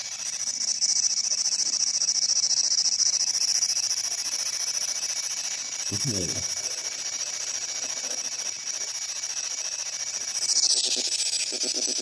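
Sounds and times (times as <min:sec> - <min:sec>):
radio static hiss: 0:05.9 - 0:06.8.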